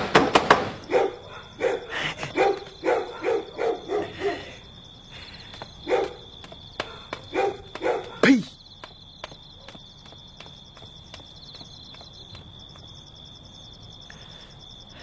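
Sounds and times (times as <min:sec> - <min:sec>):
dog barking: 0:00.8 - 0:04.6, 0:05.8 - 0:08.4.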